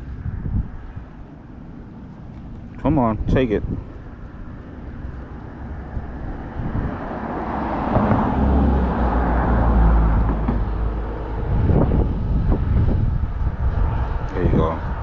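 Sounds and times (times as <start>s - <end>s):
road traffic rumbling: 0.0s - 15.0s
vehicle heavy low rumble: 0.0s - 15.0s.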